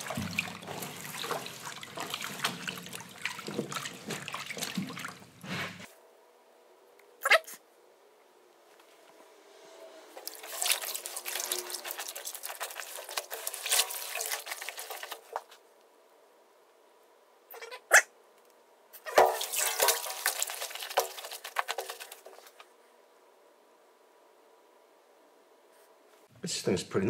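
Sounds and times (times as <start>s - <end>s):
wet crackling and squelching: 0.0s - 5.9s, 10.2s - 15.6s, 19.0s - 22.6s.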